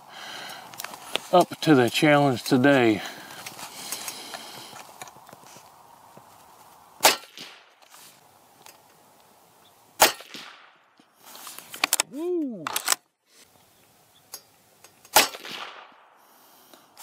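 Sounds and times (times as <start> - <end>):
suppressed rifle shots: 7.0 - 7.7, 10.0 - 10.9, 15.1 - 16.1.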